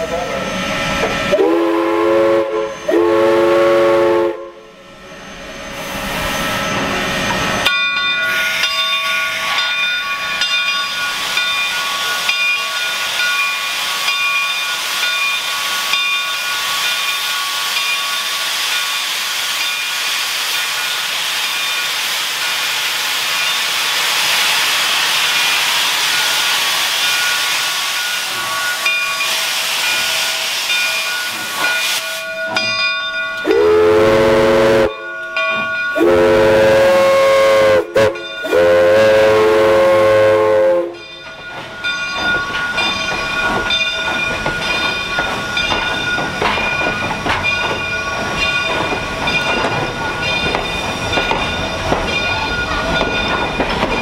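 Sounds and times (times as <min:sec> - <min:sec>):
loud hiss of steam: 0:00.0 - 0:32.8, 0:35.9 - 0:54.0
steam locomotive whistle blasts: 0:00.2 - 0:04.8, 0:33.4 - 0:35.1, 0:35.9 - 0:41.0.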